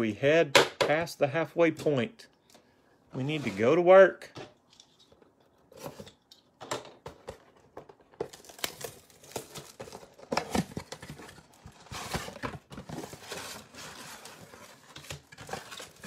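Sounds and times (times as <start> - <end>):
cardboard and wrapping tearing: 8.3 - 16.0.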